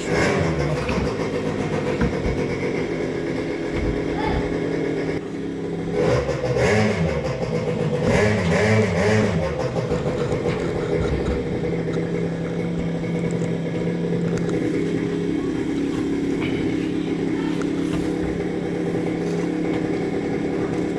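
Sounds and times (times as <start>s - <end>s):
engine revving: 0.0s - 20.9s.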